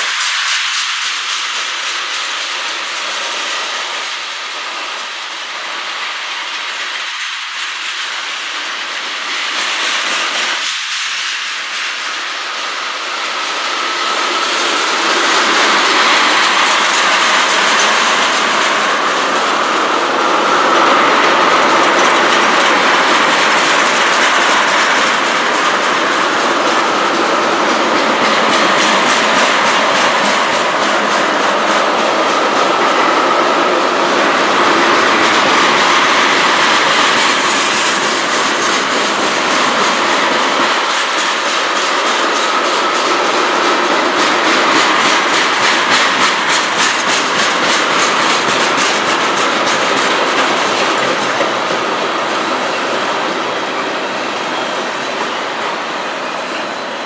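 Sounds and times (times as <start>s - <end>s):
steel wheels rushing on rail: 0.0s - 57.0s
wheels clicking over rail joints: 13.5s - 55.8s.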